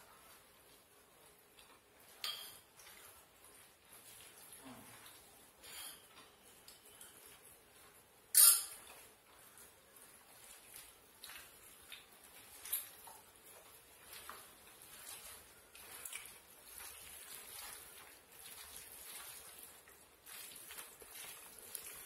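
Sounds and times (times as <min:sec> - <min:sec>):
wet squishing of food: 0:00.0 - 0:22.0
small crackles: 0:08.8 - 0:22.0.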